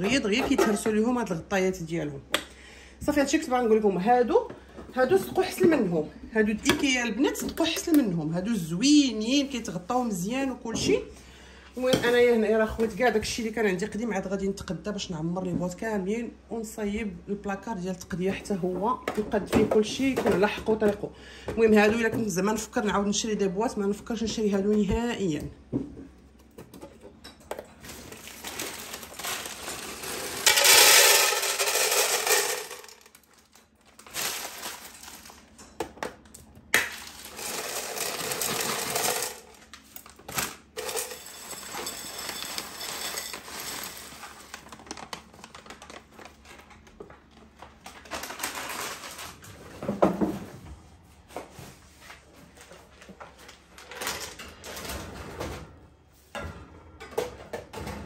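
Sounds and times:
dry pasta rattling into containers: 27.8 - 35.6, 36.8 - 46.7, 47.8 - 49.5
plastic packaging crinkling: 27.8 - 35.6, 36.8 - 49.5.

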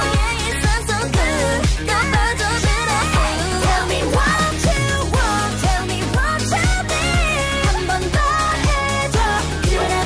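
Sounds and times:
pop song with kick drum beat: 0.0 - 10.0.

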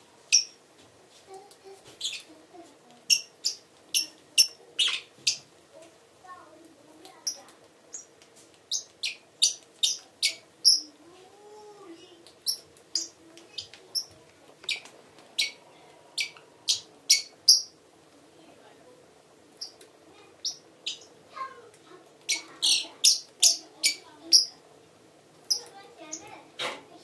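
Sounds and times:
parrot chirping: 0.3 - 0.6, 2.0 - 2.3, 3.0 - 5.5, 7.2 - 11.0, 12.4 - 17.8, 19.6 - 21.6, 22.2 - 24.6, 25.4 - 26.4.

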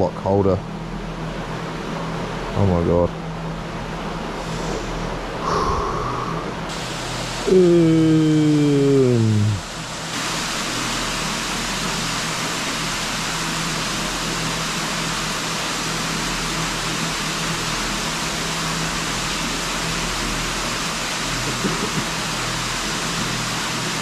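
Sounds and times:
waterfall rushing: 5.4 - 17.7.

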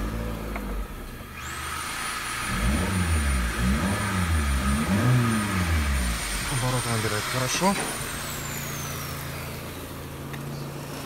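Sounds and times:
car engine idling and revving: 0.0 - 11.0.

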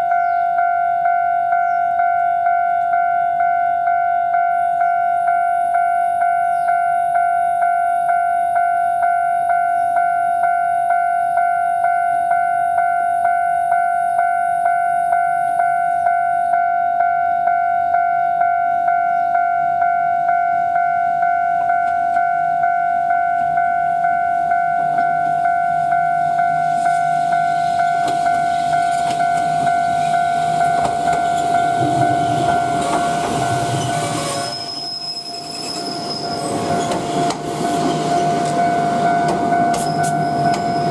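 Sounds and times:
level crossing bell ringing: 0.0 - 34.0
electric train running noise: 21.7 - 40.9
high train squeal: 26.2 - 40.9.

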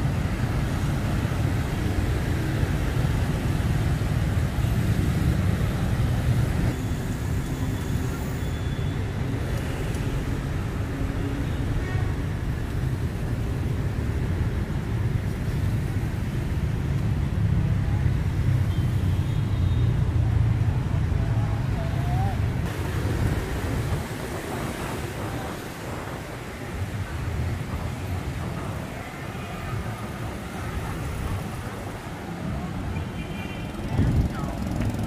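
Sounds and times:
motorbikes passing: 20.0 - 35.0.

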